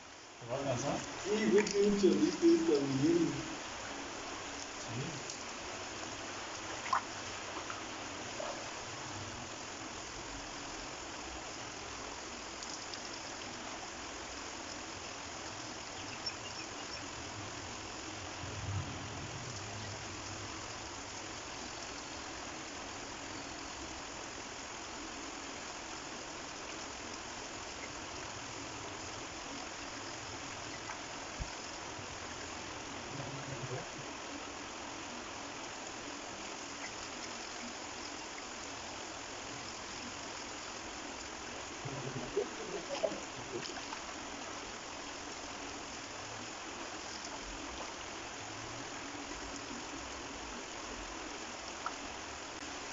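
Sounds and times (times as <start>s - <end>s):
stream flowing: 0.0s - 18.4s, 19.4s - 52.9s.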